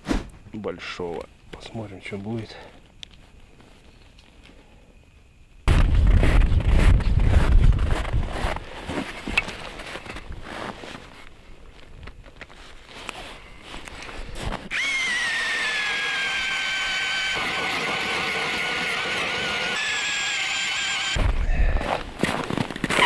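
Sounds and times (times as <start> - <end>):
drill motor whine: 14.7 - 21.2.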